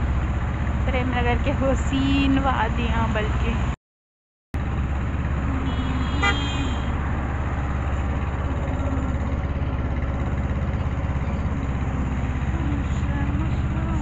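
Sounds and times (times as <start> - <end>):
road noise: 0.0 - 3.8, 4.6 - 14.0
car engine running: 4.6 - 14.0.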